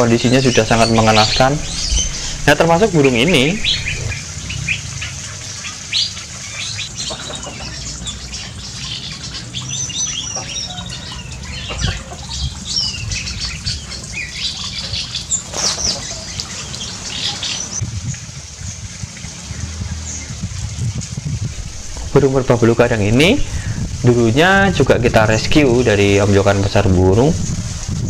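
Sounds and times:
low steady rumble: 0.0s - 5.0s, 17.8s - 28.0s
birds chirping and whistling: 0.0s - 17.8s.

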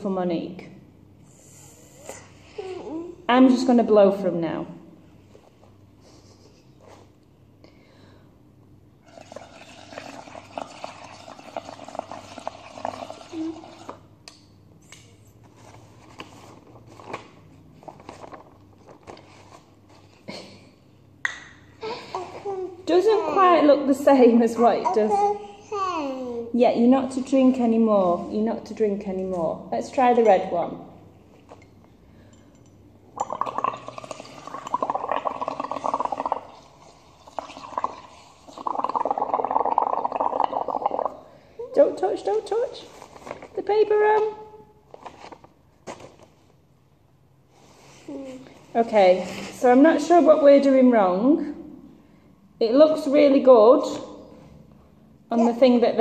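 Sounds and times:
bubbling through a straw: 9.0s - 14.1s, 33.1s - 41.4s.

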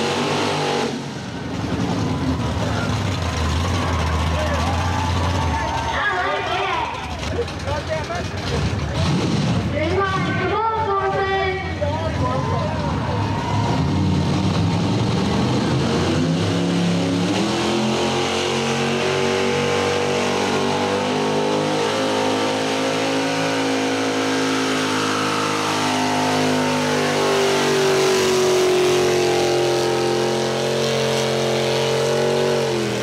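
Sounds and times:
truck engine revving: 0.0s - 33.0s.

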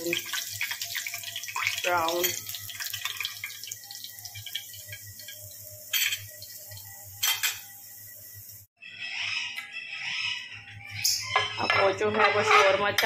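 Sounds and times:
hot oil sizzling: 0.0s - 8.7s
metal tongs clinking: 4.9s - 6.4s, 7.2s - 7.7s.

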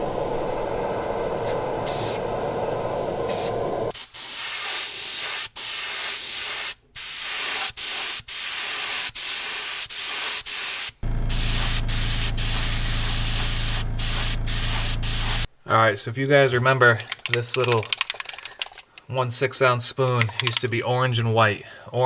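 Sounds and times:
low rough noise: 0.0s - 3.9s, 11.0s - 15.5s
low steady hum: 0.0s - 3.9s, 11.0s - 15.5s
paint spraying in bursts: 1.9s - 2.2s, 3.3s - 15.5s.

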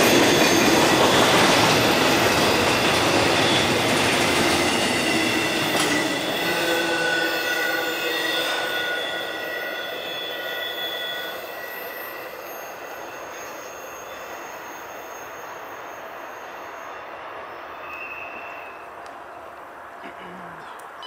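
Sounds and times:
train wheel rumble: 0.0s - 16.3s
wheel flanges squealing: 0.0s - 19.0s.

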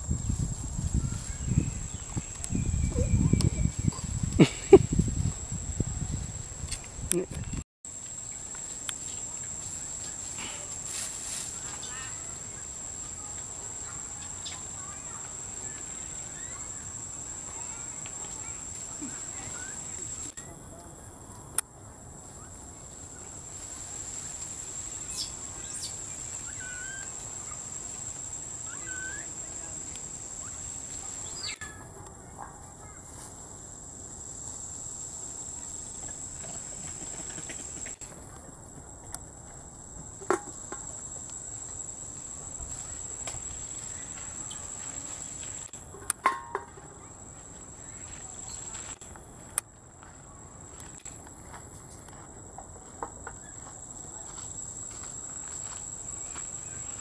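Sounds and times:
insects droning: 0.0s - 57.0s
high-pitched insect drone: 24.7s - 32.0s.

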